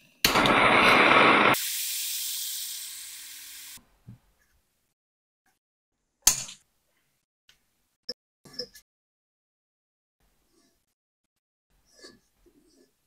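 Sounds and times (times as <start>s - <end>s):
gas torch flame rushing: 0.3s - 3.8s.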